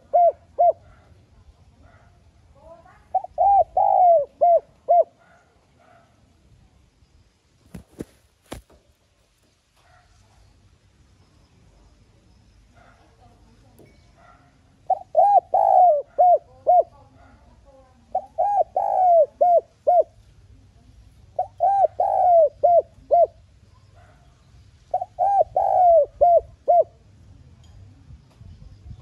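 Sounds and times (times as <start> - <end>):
dove cooing: 0.0 - 1.2, 2.9 - 6.0, 14.8 - 20.2, 21.3 - 23.4, 24.9 - 27.1.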